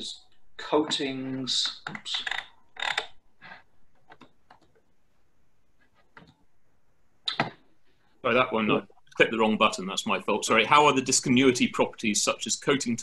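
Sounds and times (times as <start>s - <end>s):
keyboard and mouse clicks: 1.6s - 4.9s, 6.0s - 6.4s.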